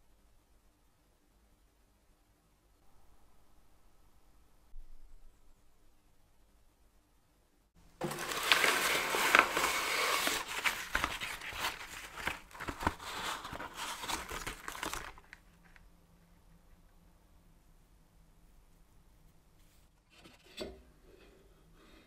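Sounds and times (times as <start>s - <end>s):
paper bag crinkling: 8.0s - 15.8s.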